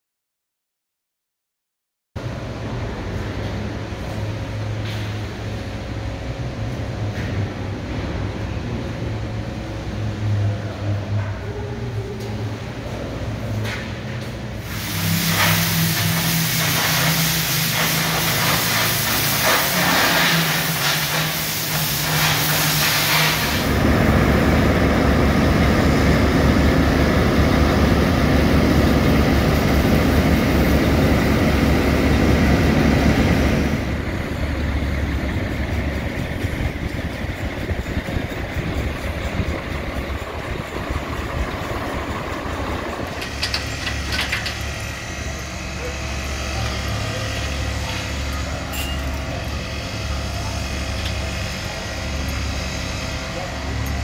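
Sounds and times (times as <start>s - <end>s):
heavy diesel engines running: 2.2s - 54.0s
cutting torch hissing and crackling: 14.6s - 25.4s.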